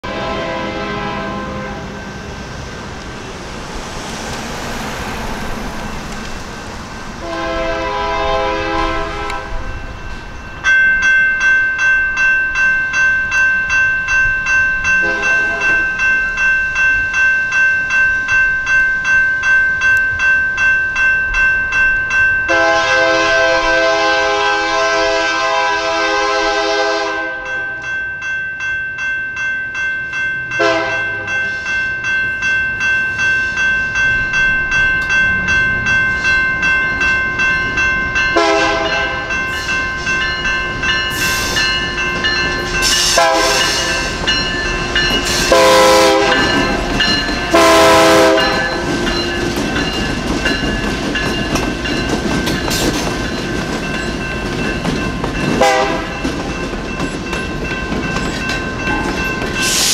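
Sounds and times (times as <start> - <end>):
locomotive air horn blasts: 0.0 - 1.9, 7.2 - 9.7, 15.0 - 15.8, 22.5 - 27.8, 30.6 - 31.3, 38.4 - 39.4, 42.8 - 44.2, 45.2 - 46.8, 47.5 - 48.9, 55.6 - 56.2
crossing warning bell ringing: 0.0 - 59.9.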